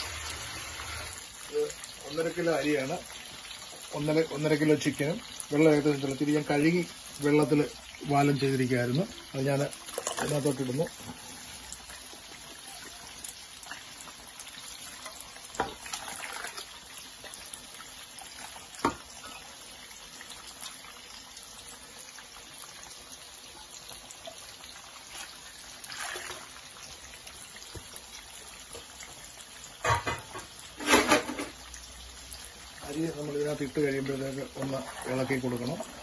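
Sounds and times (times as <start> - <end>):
steady watery hiss: 0.0 - 36.0
rice pouring into water: 15.6 - 16.7, 25.0 - 26.7.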